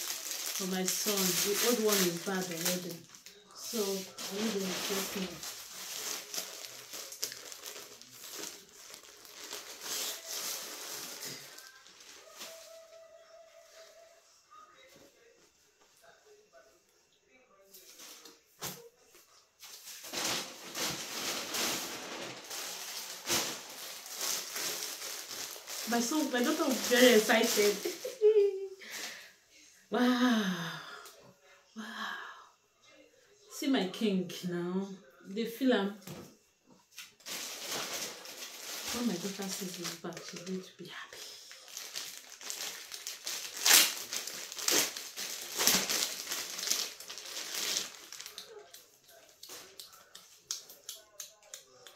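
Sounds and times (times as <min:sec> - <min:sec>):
plastic bag crinkling: 0:00.0 - 0:12.9, 0:19.6 - 0:29.1, 0:37.1 - 0:50.0
plastic packaging rustling: 0:00.0 - 0:13.0, 0:19.6 - 0:29.2, 0:37.0 - 0:50.8.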